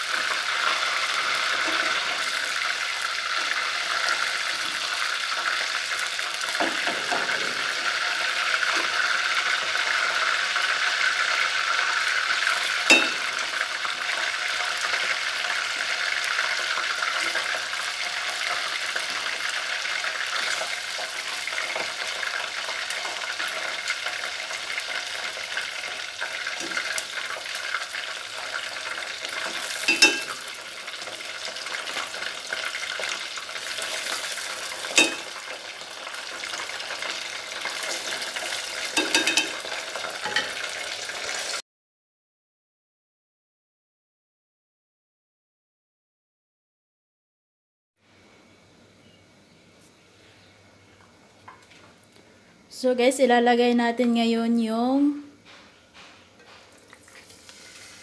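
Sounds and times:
prawns sizzling in oil: 0:00.0 - 0:41.6, 0:56.7 - 0:58.0
chopsticks clinking on pot: 0:29.9 - 0:30.4, 0:34.9 - 0:35.3, 0:39.0 - 0:39.6.

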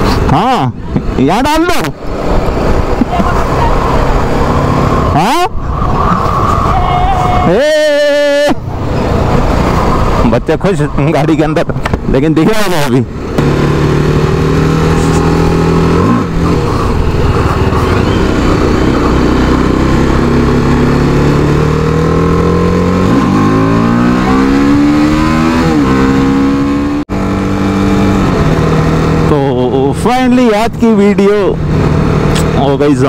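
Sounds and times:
road and wind noise: 0:00.0 - 0:33.0
motorcycle engine revving: 0:01.9 - 0:05.2, 0:12.7 - 0:33.0.

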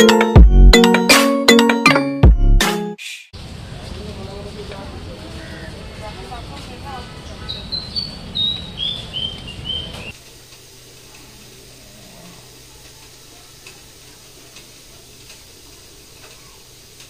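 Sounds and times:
faint steady hiss: 0:10.1 - 0:17.0.

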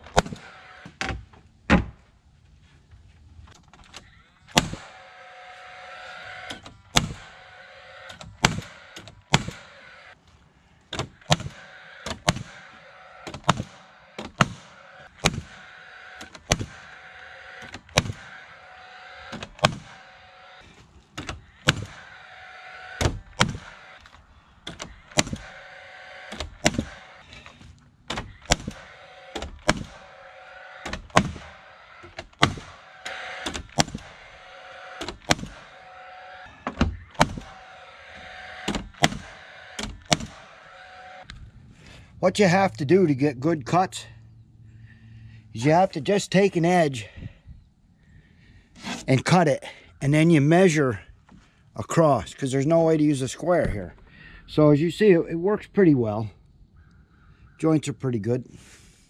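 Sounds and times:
hammer driving nails into wood: 0:00.0 - 0:01.9, 0:04.5 - 0:05.0, 0:06.4 - 0:07.3, 0:08.1 - 0:09.8, 0:10.9 - 0:16.9, 0:17.6 - 0:18.4, 0:19.3 - 0:20.1, 0:21.2 - 0:22.0, 0:23.0 - 0:25.6, 0:26.2 - 0:30.2, 0:30.8 - 0:34.2, 0:35.0 - 0:35.8, 0:36.6 - 0:37.7, 0:38.6 - 0:40.6.

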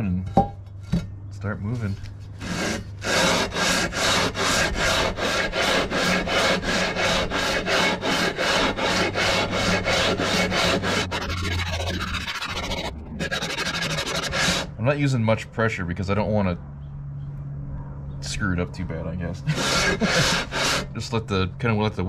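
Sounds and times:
metal rasping on sandpaper: 0:01.7 - 0:14.7, 0:19.5 - 0:21.1.

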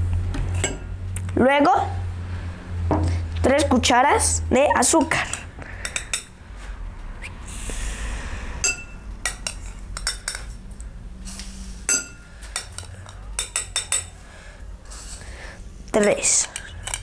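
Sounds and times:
metal spoon clinking on glass: 0:08.6 - 0:10.5, 0:11.9 - 0:14.2, 0:16.0 - 0:17.0.

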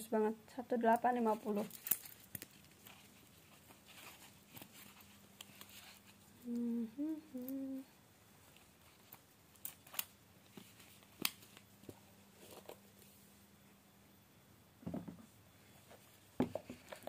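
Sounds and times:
person humming notes: 0:06.4 - 0:08.0.

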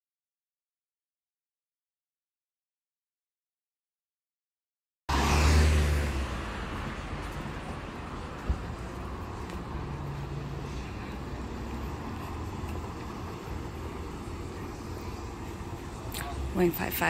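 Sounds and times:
traffic hum: 0:05.1 - 0:17.0
vehicle passing loudly: 0:05.1 - 0:17.0
low engine drone: 0:06.4 - 0:17.0.

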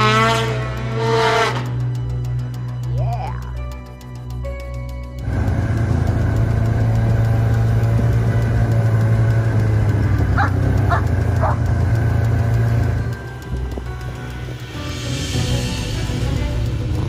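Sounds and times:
snowmobile engine running: 0:00.0 - 0:03.1, 0:05.2 - 0:17.0
dog barking: 0:10.4 - 0:11.6.

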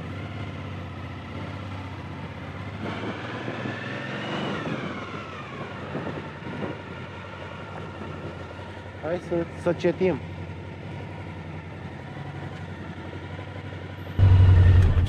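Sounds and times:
motorcycle engine running: 0:09.3 - 0:15.0.

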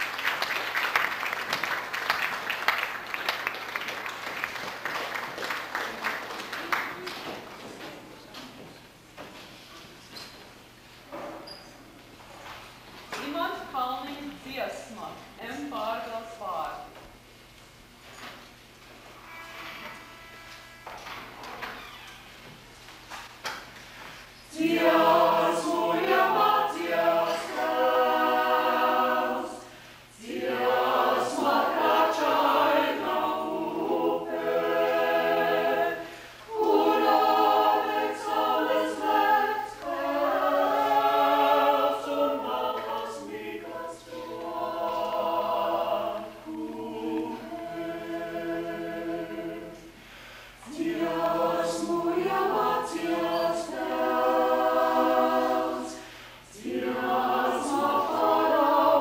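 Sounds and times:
vocal ensemble singing a cappella: 0:24.4 - 0:59.0.

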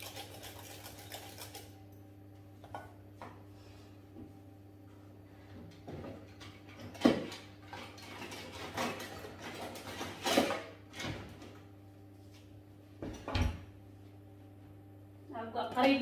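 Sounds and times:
utensils clattering in drawer: 0:06.7 - 0:11.1.

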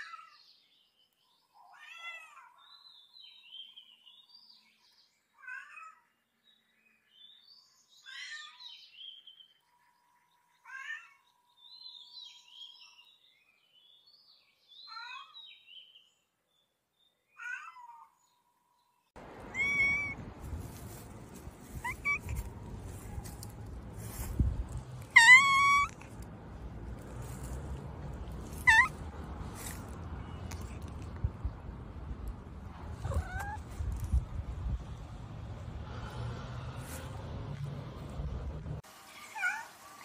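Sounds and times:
cats meowing: 0:01.6 - 0:02.6, 0:19.4 - 0:20.2, 0:21.6 - 0:23.4, 0:25.0 - 0:26.2, 0:28.4 - 0:29.1, 0:32.8 - 0:33.7.

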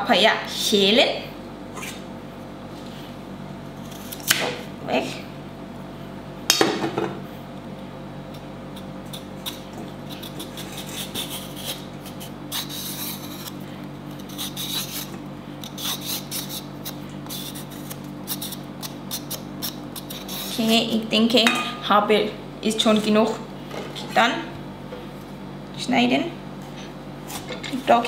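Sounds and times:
steady low hum: 0:00.0 - 0:28.0
blade scraping papaya skin: 0:03.8 - 0:04.6, 0:08.7 - 0:21.0.

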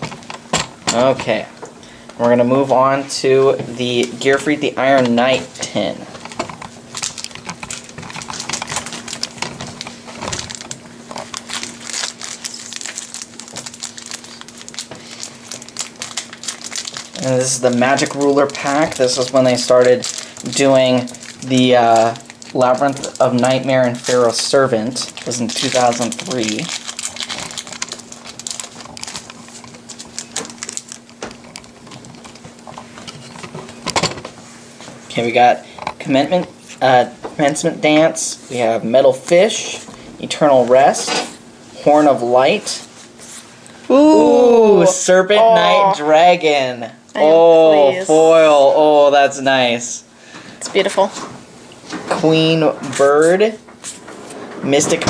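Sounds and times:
faint steady hum: 0:00.0 - 0:55.0
cards clicking and rustling: 0:06.2 - 0:34.2.

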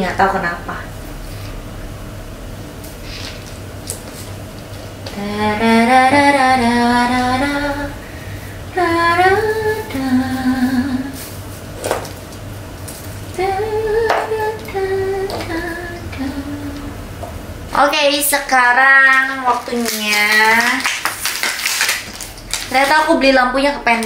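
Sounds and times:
woman singing alone: 0:05.1 - 0:08.0, 0:08.7 - 0:11.2, 0:13.4 - 0:16.9.

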